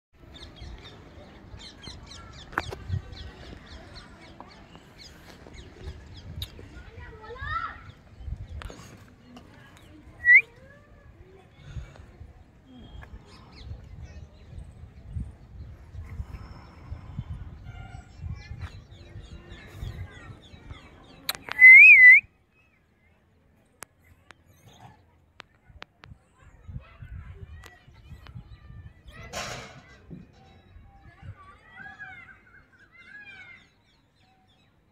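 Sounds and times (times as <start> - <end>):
small birds chirping: 0.2 - 34.9
loud wavering whistle: 21.6 - 22.2.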